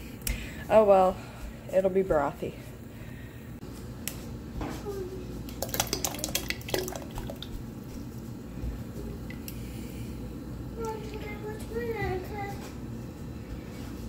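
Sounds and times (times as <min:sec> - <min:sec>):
sauce splashing into a pot: 0:05.6 - 0:07.5.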